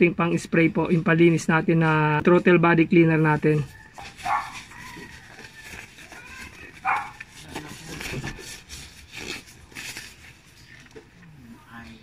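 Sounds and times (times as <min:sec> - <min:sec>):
plastic gloves crinkling: 0:03.0 - 0:11.3.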